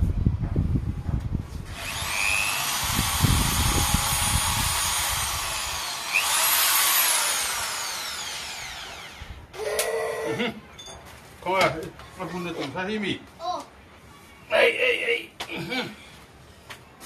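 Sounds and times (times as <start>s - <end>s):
drill bit rattling: 1.7s - 9.3s
electric drill whining: 1.7s - 9.6s.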